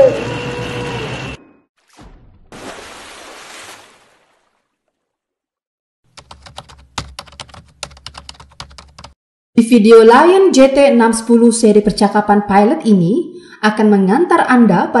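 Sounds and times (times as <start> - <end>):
keyboard typing clicks: 6.1 - 9.2.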